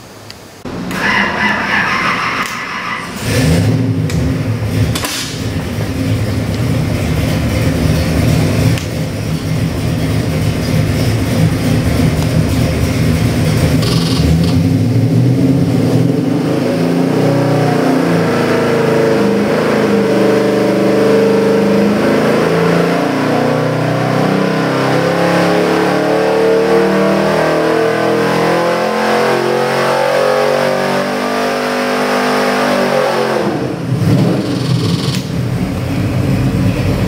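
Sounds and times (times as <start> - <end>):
engine revving up on dynamometer: 0.9 - 6.2, 11.2 - 37.0.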